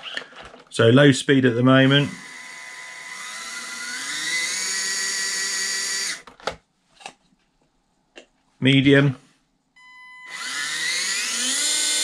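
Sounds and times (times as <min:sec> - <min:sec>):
small electric motor whining: 0:01.9 - 0:06.2, 0:10.0 - 0:12.0.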